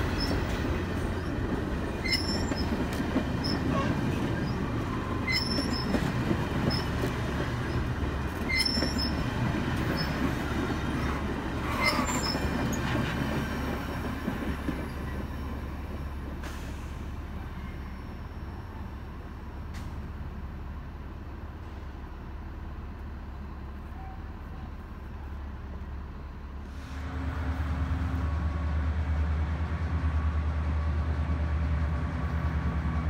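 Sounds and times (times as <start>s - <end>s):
train wheels rumbling on rails: 0.0s - 33.0s.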